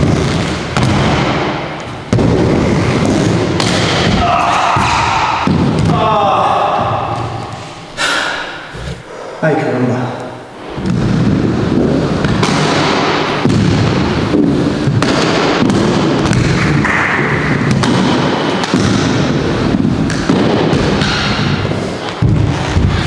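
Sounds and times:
skate wheels rolling on plywood: 0:00.0 - 0:07.7, 0:10.6 - 0:23.0.

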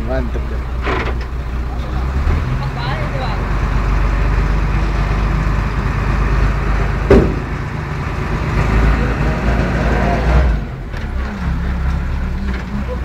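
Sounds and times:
vehicle engines running: 0:00.0 - 0:13.0
sharp knock: 0:07.1 - 0:07.6.

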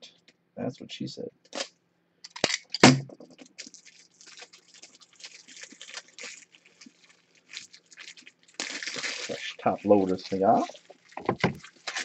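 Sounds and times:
trading cards rustling and crackling: 0:03.4 - 0:12.0.

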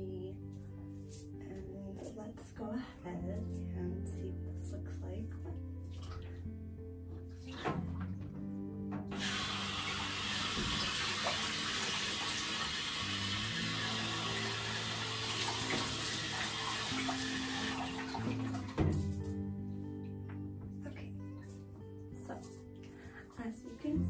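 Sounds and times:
shower head spraying water: 0:09.1 - 0:19.3.

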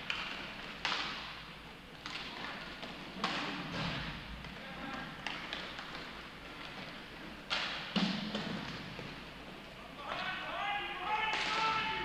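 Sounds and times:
hockey sticks and puck knocking: 0:00.0 - 0:09.3, 0:11.2 - 0:12.0
faint shouts: 0:10.0 - 0:12.0.

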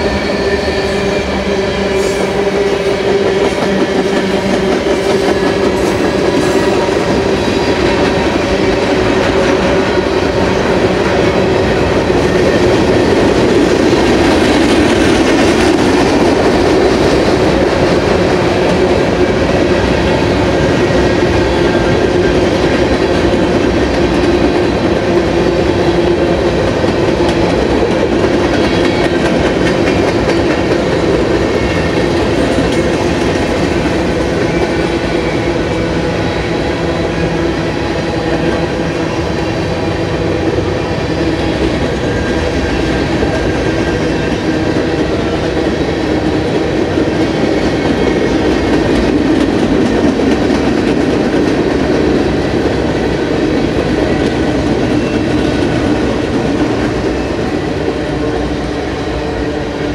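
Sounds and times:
train wheels rolling on rails: 0:00.0 - 0:59.9.

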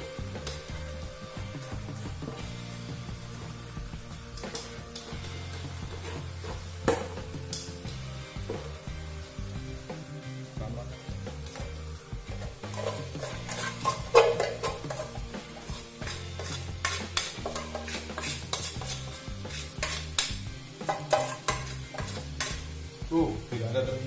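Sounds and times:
background music: 0:00.0 - 0:24.0
light sizzle: 0:00.0 - 0:24.0
spatula scraping pot: 0:12.3 - 0:22.7.

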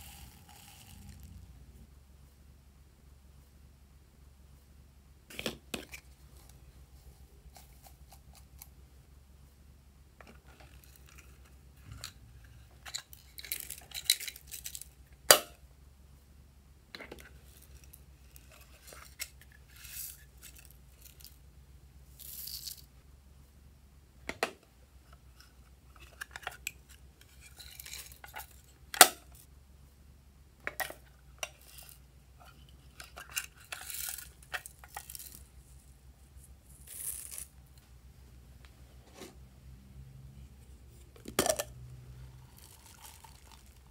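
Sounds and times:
sequins rustling and clicking: 0:00.0 - 0:01.5, 0:10.3 - 0:15.0, 0:17.3 - 0:21.4, 0:22.2 - 0:23.0, 0:31.4 - 0:37.8, 0:42.3 - 0:43.9.

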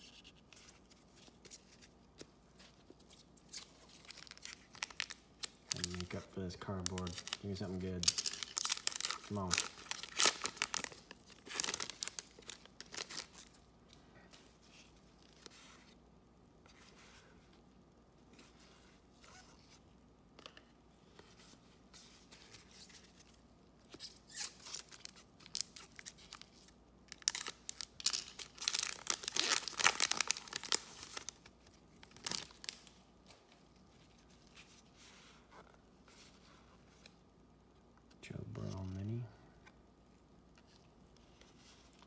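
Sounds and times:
cards rustling: 0:00.3 - 0:13.6
wrapper tearing and crinkling: 0:03.9 - 0:13.5, 0:24.3 - 0:32.9.

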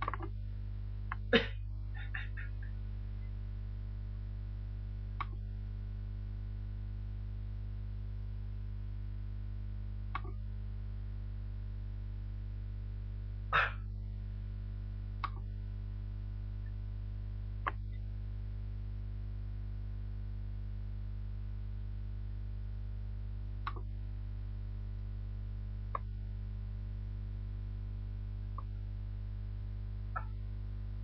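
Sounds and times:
electrical mains hum: 0:00.0 - 0:31.0
sharp clicks: 0:05.2 - 0:05.4, 0:10.1 - 0:10.4, 0:15.2 - 0:15.5, 0:23.6 - 0:23.9.

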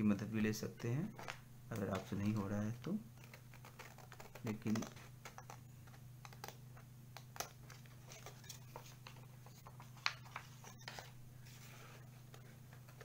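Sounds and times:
low steady hum: 0:00.0 - 0:13.0
paper rustling: 0:03.2 - 0:06.6, 0:07.4 - 0:13.0.

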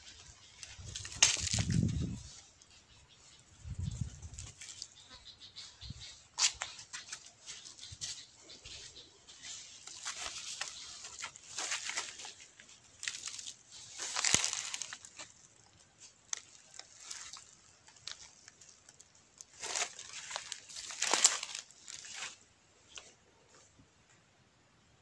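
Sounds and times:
dry leaves and twigs rustling: 0:00.0 - 0:23.8
twig cracking: 0:00.5 - 0:02.1, 0:09.8 - 0:23.0.

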